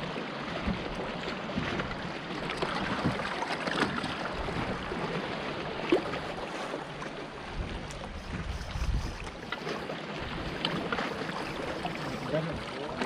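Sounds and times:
water splashing around boat: 0:00.0 - 0:13.0
wind noise: 0:07.4 - 0:12.3.

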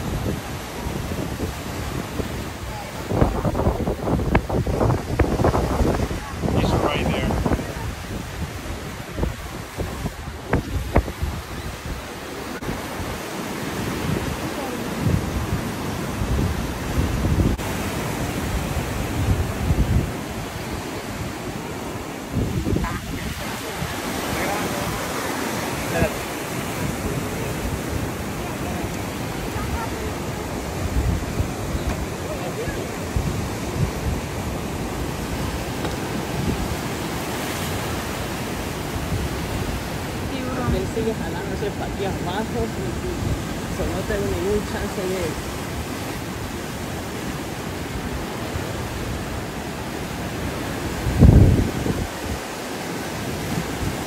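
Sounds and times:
ocean surf breaking: 0:00.0 - 0:54.0
wind rumbling on microphone: 0:00.0 - 0:54.0.

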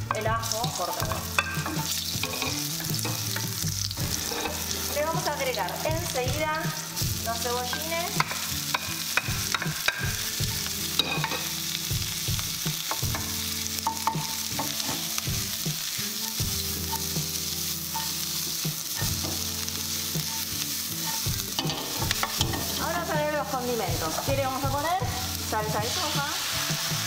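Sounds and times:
spatula scraping and tapping pan: 0:00.0 - 0:06.2, 0:07.6 - 0:11.6, 0:12.7 - 0:15.4, 0:16.8 - 0:23.0
vegetables sizzling in hot oil: 0:00.0 - 0:27.0.

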